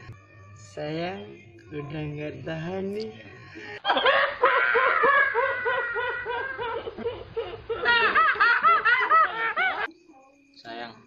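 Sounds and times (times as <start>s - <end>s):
woman laughing hard: 3.8s - 9.9s.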